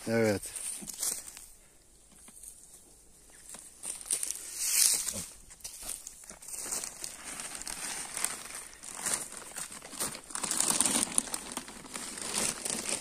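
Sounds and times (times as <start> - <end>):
silage rustling on plastic tarp: 3.5 - 13.0.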